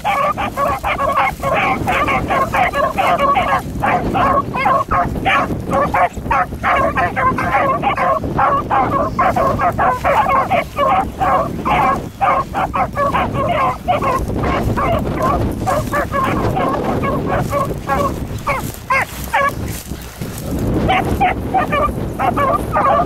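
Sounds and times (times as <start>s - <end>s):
dogs baying and yelping: 0.0s - 20.0s, 20.8s - 23.0s.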